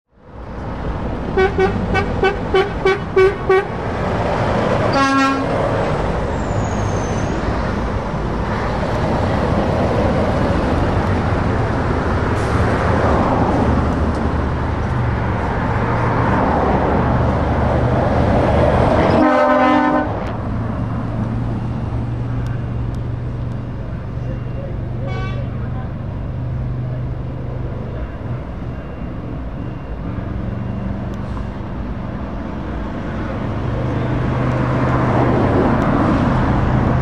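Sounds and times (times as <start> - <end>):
trucks and cars driving past: 0.1 - 37.0
truck air horn blast: 1.4 - 3.8, 4.9 - 5.6, 19.1 - 20.3, 25.0 - 25.6.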